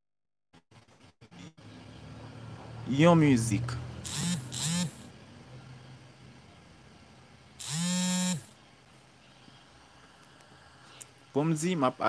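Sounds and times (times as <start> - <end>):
phone vibration motor buzzing: 4.0 - 5.1, 7.6 - 8.6.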